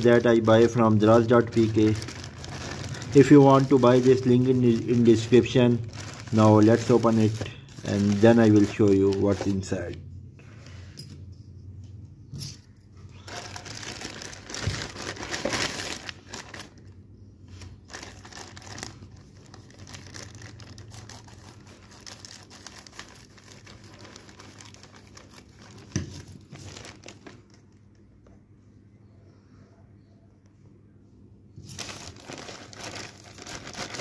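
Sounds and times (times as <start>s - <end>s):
plastic mailer bag crinkling: 0.0s - 10.0s, 13.2s - 16.9s, 17.5s - 28.0s, 31.6s - 34.0s.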